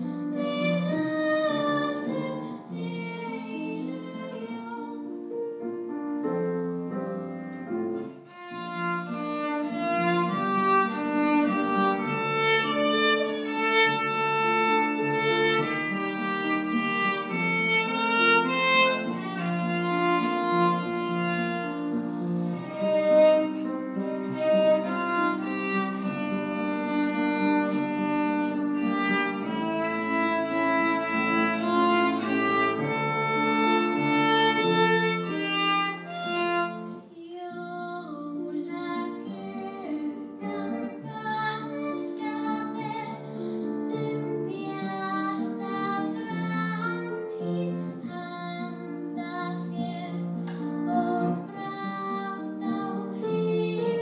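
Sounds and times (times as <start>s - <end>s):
girl singing: 0.0s - 5.3s, 36.8s - 54.0s
piano accompaniment: 0.0s - 54.0s
violin melody: 0.0s - 54.0s.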